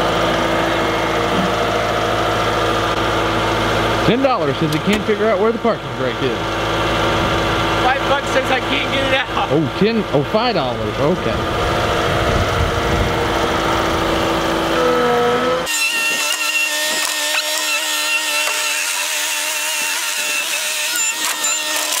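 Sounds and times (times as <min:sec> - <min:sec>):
diesel engine running: 0:00.0 - 0:15.7
thin steady whine: 0:00.0 - 0:15.7.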